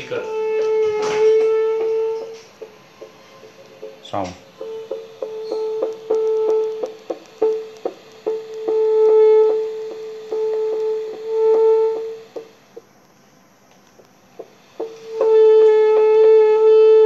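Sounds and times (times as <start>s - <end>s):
doppler pulse beats: 0.0s - 13.0s
steady pitched hum: 0.0s - 17.0s.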